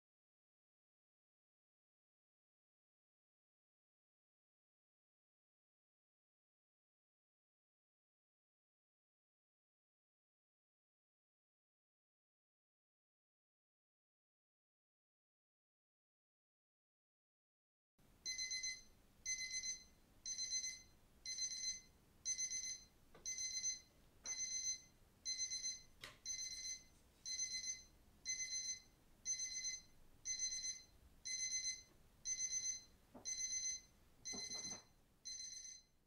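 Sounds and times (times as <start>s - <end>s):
digital timer alarm beeping: 18.2s - 35.9s.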